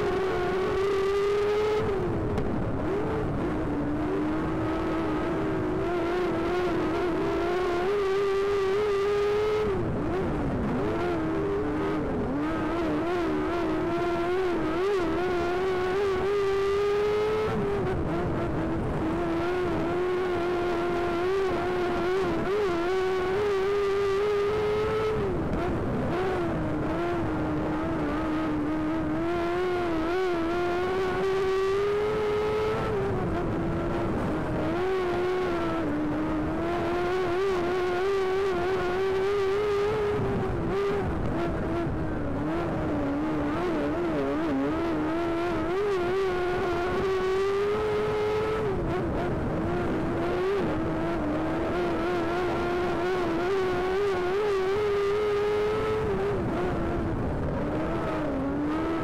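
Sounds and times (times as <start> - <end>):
race car engine revving: 0.0 - 59.0.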